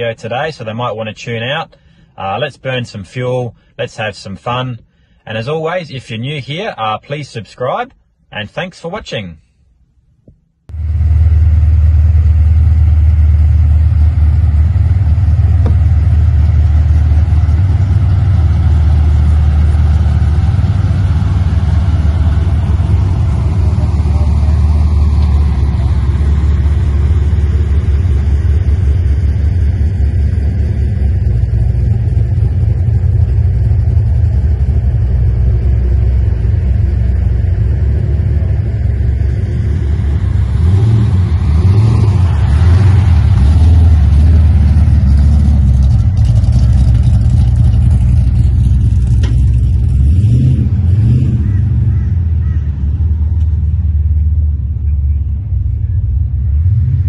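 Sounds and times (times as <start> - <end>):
car engine rumbling at cruise: 0.0 - 57.0.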